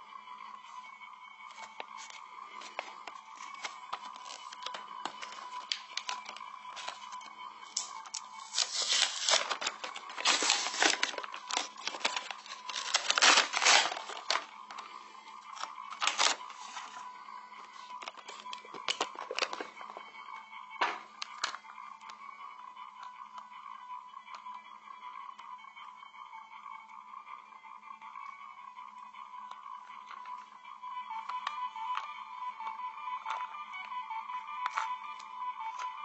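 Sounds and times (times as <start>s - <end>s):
faint hum: 0.0s - 36.0s
crinkling and tearing: 1.6s - 14.8s, 15.5s - 17.0s, 17.8s - 19.8s.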